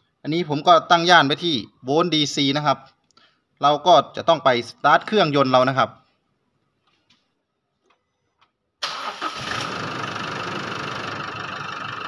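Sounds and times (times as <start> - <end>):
diesel engine idling: 8.9 - 12.0.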